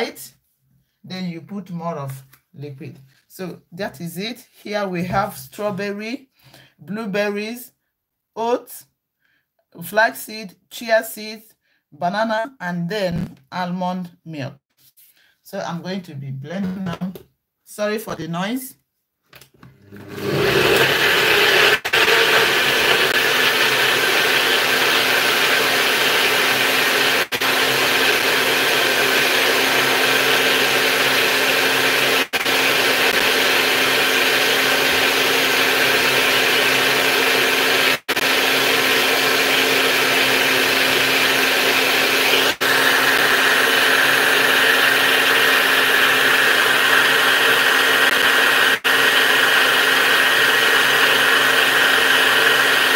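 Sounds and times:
cup blender running: 19.8s - 52.9s.

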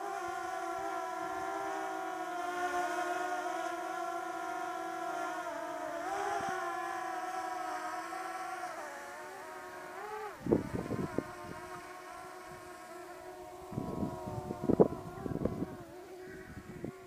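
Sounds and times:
drone propellers whining: 0.0s - 17.0s
wind buffeting microphone: 10.4s - 17.0s.

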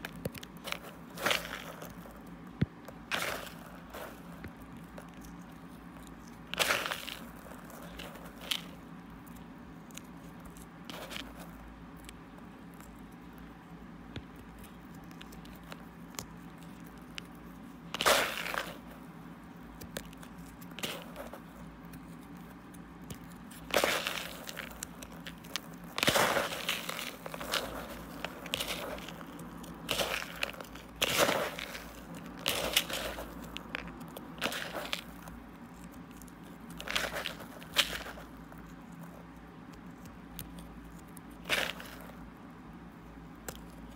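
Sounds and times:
fingers crunching through crystals: 0.0s - 13.4s, 14.0s - 42.3s.

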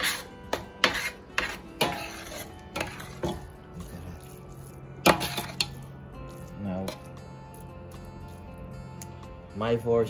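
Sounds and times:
metal spoon scraping metal pot: 0.0s - 3.5s, 5.0s - 5.9s.

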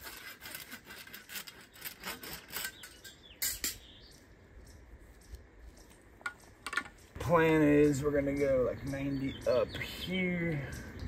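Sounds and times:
hand saw cutting plastic conduit: 0.0s - 3.0s.

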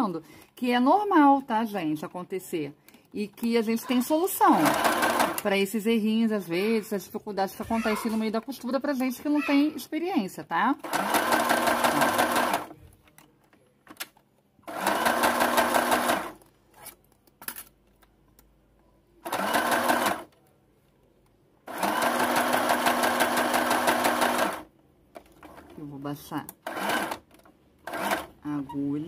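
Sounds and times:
electric sewing machine stitching: 4.5s - 5.5s, 10.8s - 12.7s, 14.7s - 16.4s, 19.2s - 20.3s, 21.7s - 24.7s, 26.6s - 28.4s.

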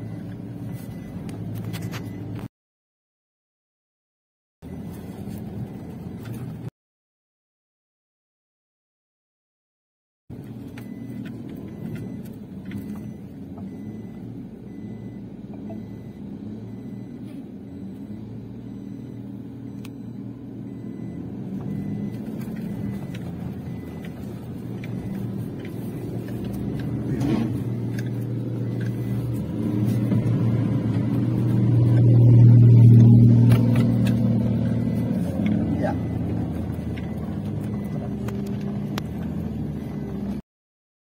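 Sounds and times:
pickup engine low hum: 0.0s - 2.5s, 10.3s - 40.4s.

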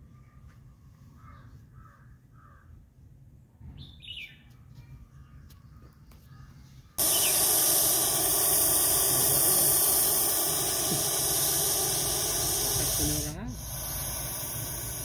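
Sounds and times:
snake hissing: 7.0s - 15.0s.

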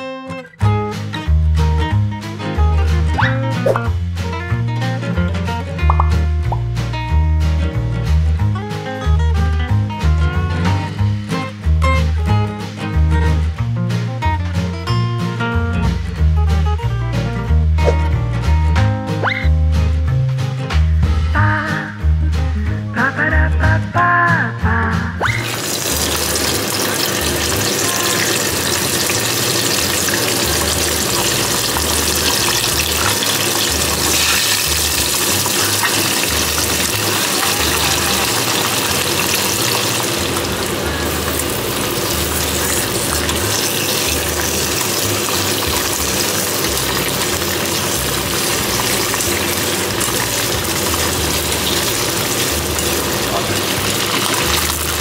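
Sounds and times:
chicken wings sizzling in hot oil: 25.2s - 55.0s.

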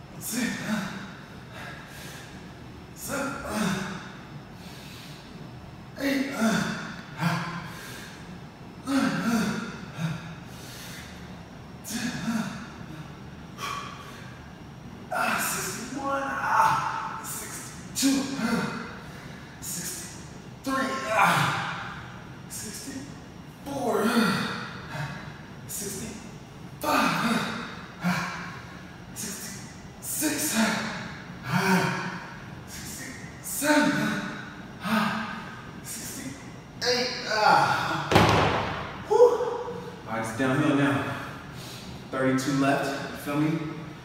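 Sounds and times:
man grunting: 0.2s - 1.9s, 3.0s - 4.1s, 6.0s - 7.7s, 8.8s - 10.4s, 11.8s - 14.1s, 15.1s - 20.1s, 20.7s - 23.1s, 23.7s - 26.2s, 26.8s - 41.4s
man breathing hard: 0.3s - 2.5s, 3.1s - 5.4s, 6.3s - 14.6s, 17.3s - 20.2s, 41.0s - 42.1s.

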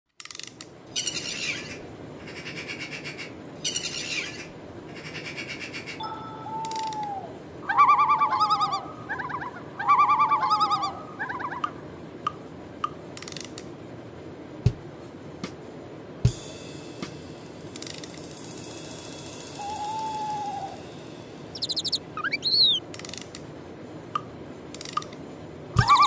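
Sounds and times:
trilling mechanical bird calls: 0.3s - 11.9s, 17.8s - 23.4s, 25.8s - 26.0s
falling whistle: 19.6s - 20.8s, 21.6s - 22.8s, 25.8s - 26.0s.

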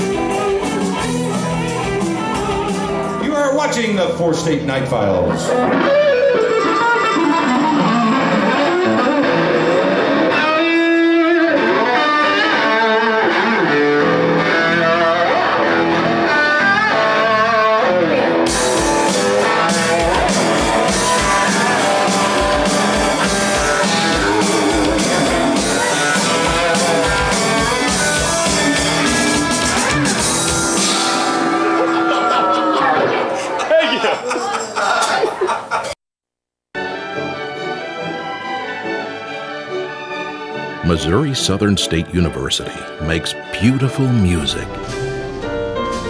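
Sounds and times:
electric guitar melody: 0.0s - 3.2s, 5.3s - 32.2s, 40.6s - 46.0s.

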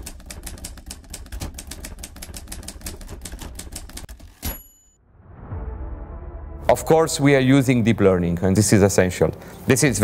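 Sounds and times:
typewriter key clacks: 0.0s - 4.6s
typewriter carriage-return bell: 0.1s - 5.0s.

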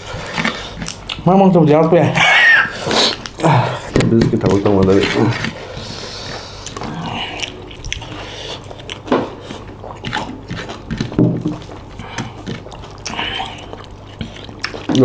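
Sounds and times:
chewing and lip smacking: 0.0s - 1.3s, 6.1s - 15.0s.

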